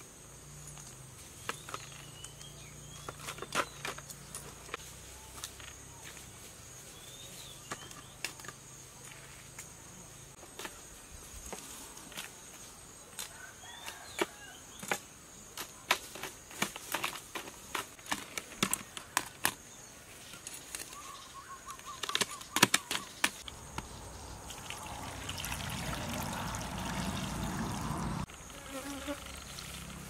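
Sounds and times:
crabs and tongs clacking on plastic: 15.6s - 19.6s, 21.8s - 23.6s
liquid pouring into jar: 24.5s - 28.0s.

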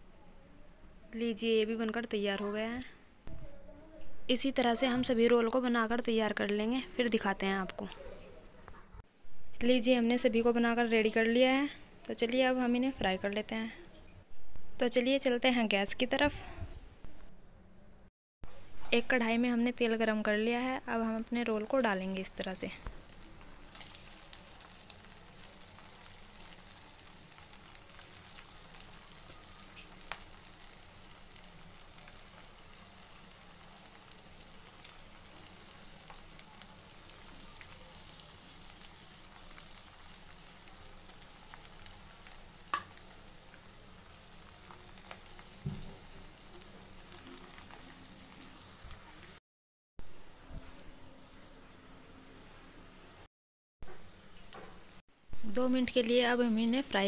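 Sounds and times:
food deep-frying in oil: 18.8s - 49.4s.

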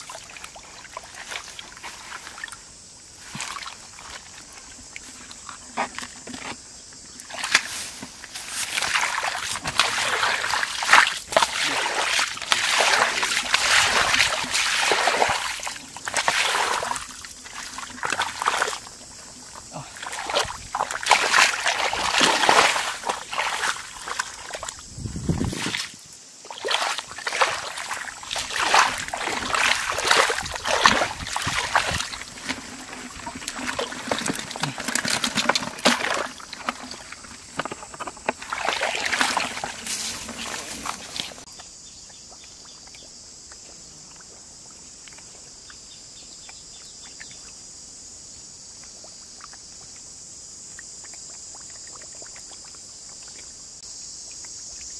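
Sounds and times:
feet splashing in muddy water: 0.0s - 5.6s, 7.2s - 41.6s.

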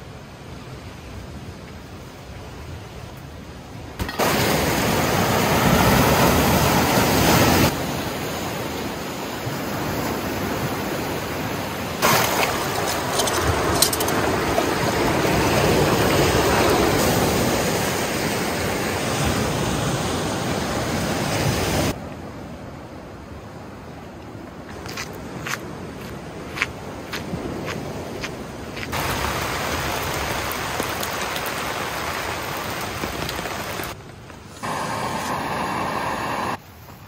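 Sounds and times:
water rushing over rock: 4.0s - 9.0s, 12.0s - 20.2s, 28.9s - 34.0s.

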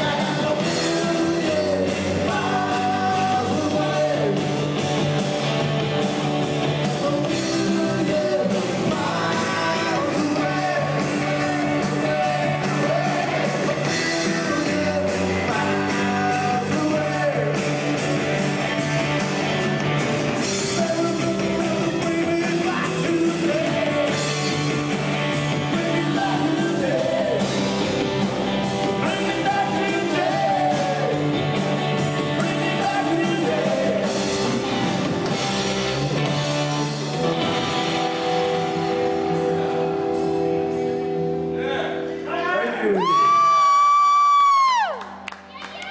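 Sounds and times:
lead singer singing: 0.0s - 4.6s, 6.8s - 17.8s, 20.4s - 27.9s, 28.8s - 31.5s, 32.2s - 34.8s
drums: 0.0s - 45.9s
electric guitars: 0.0s - 45.9s.

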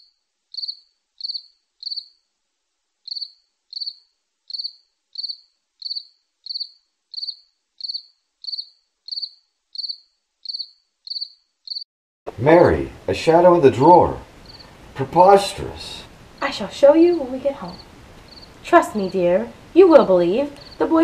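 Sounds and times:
cricket chirping: 0.0s - 2.3s, 3.0s - 11.8s, 14.4s - 14.8s, 15.5s - 19.2s, 20.6s - 21.0s.

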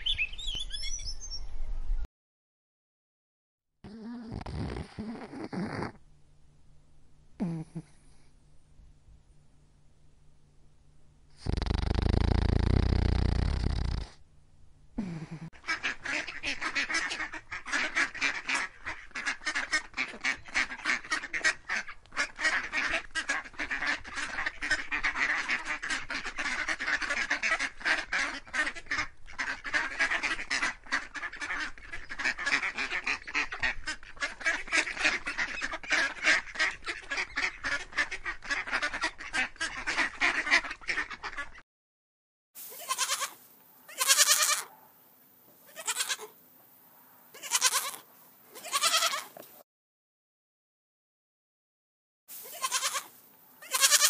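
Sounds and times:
ducklings peeping: 15.6s - 41.6s
goat kid bleating: 42.7s - 44.7s, 45.6s - 46.4s, 47.3s - 49.4s, 52.4s - 54.0s.

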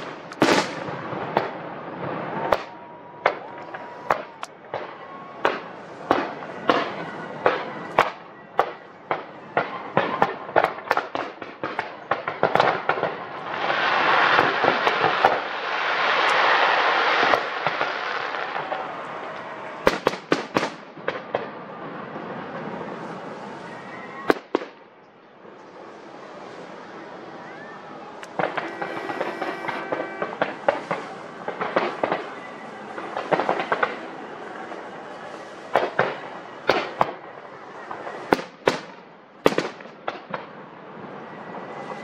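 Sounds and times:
aerial fireworks bangs: 0.0s - 19.1s, 19.7s - 21.6s, 28.2s - 34.2s, 35.7s - 40.6s.

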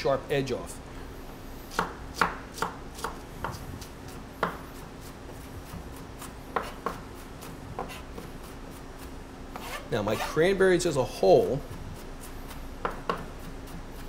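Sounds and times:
knife chopping on cutting board: 1.7s - 9.8s, 11.7s - 14.0s.

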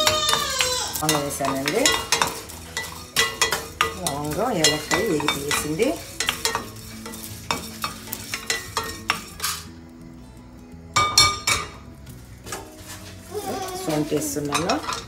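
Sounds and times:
steel dish clinking: 0.0s - 9.7s, 13.9s - 15.0s
pods rattling in pan: 0.0s - 9.8s, 12.3s - 15.0s
spatula scraping and tapping pan: 0.0s - 9.8s, 11.0s - 15.0s.

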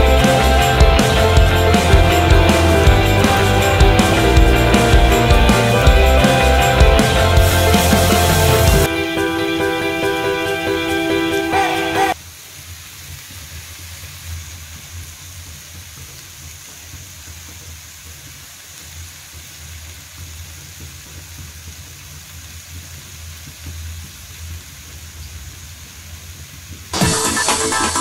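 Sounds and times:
low uneven rumble: 0.0s - 8.9s.

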